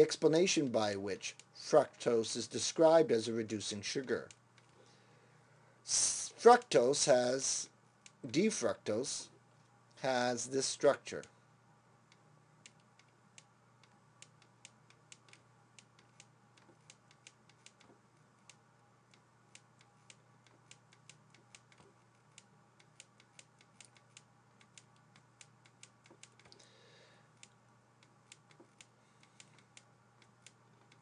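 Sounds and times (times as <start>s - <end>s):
low electrical hum: 0.0s - 31.0s.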